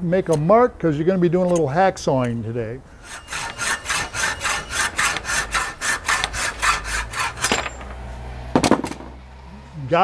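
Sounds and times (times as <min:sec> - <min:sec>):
hacksaw cutting metal tubing: 0:03.0 - 0:07.8.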